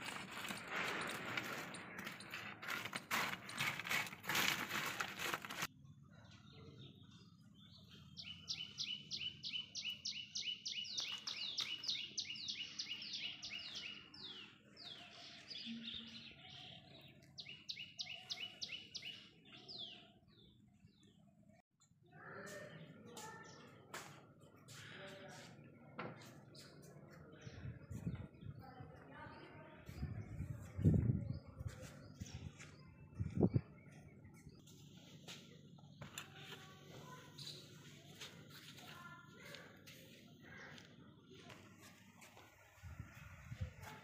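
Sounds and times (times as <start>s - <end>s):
bird singing high chirps: 6.6s - 20.6s.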